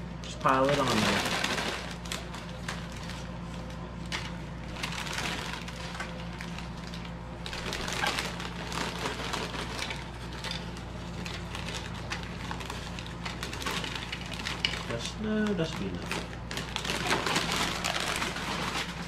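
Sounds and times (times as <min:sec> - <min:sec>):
chip bag crinkling: 0:00.3 - 0:19.0.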